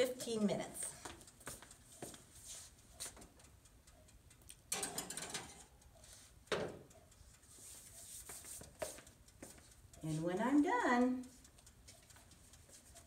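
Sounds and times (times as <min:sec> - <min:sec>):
dial clicks and timer ticking: 0:00.0 - 0:13.0
metal pan and oven door clatter: 0:04.7 - 0:05.7.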